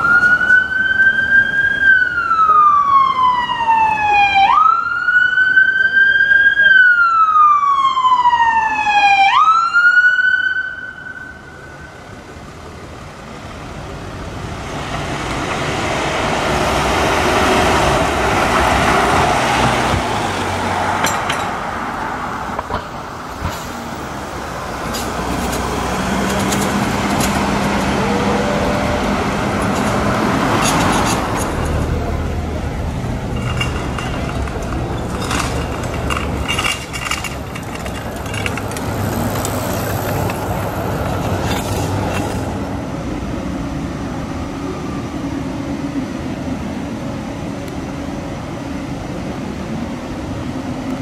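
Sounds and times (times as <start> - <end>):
police siren: 0.0 - 12.2, 25.9 - 32.5
road traffic passing: 0.0 - 51.0.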